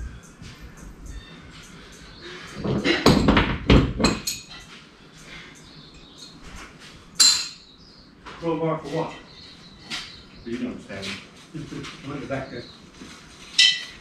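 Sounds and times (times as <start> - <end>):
chain clattering and rattling: 3.9 - 4.8.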